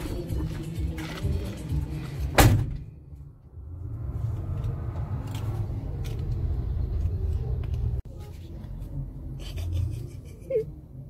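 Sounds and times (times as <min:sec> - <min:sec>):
low vehicle rumble: 0:00.0 - 0:11.0
car door slamming: 0:02.3 - 0:02.9.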